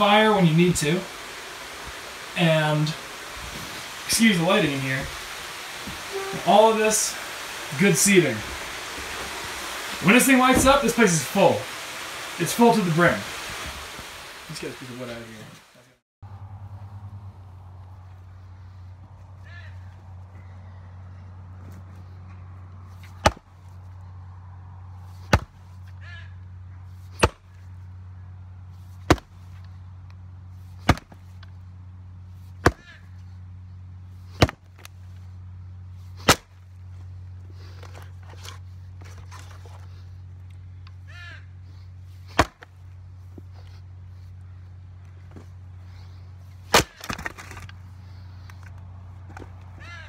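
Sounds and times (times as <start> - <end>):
axe splitting firewood: 23.0 - 23.5, 25.2 - 25.6, 27.1 - 27.6, 29.0 - 29.4, 30.8 - 31.4, 32.5 - 33.0, 34.3 - 34.9, 36.2 - 36.7, 42.2 - 42.8, 46.6 - 50.0.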